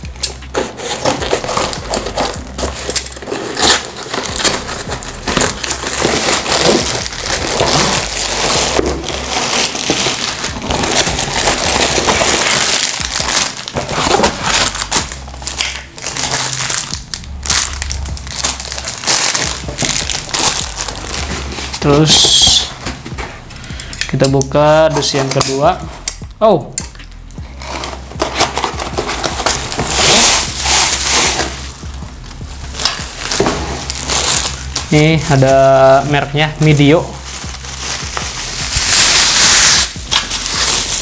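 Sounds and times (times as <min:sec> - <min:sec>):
plastic wrap crinkling: 0:00.0 - 0:25.7, 0:27.6 - 0:41.0
cardboard scraping and rustling: 0:00.5 - 0:15.0, 0:27.6 - 0:31.7, 0:32.8 - 0:35.3.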